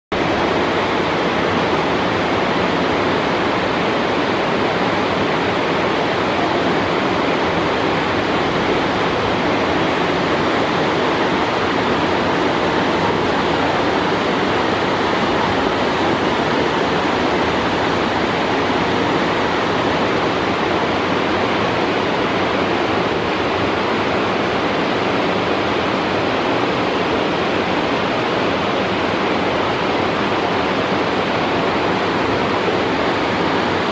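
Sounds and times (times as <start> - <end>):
waterfall rushing: 0.1 - 33.9.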